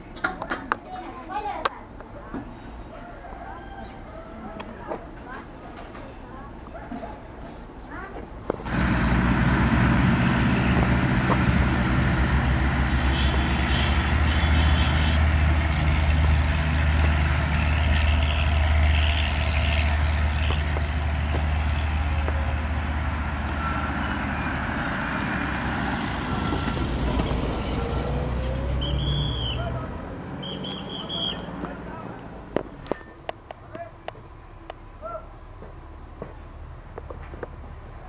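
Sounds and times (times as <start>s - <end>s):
diesel locomotive engine drone: 7.4s - 38.0s
high train squeals: 23.5s - 25.1s, 26.0s - 29.7s.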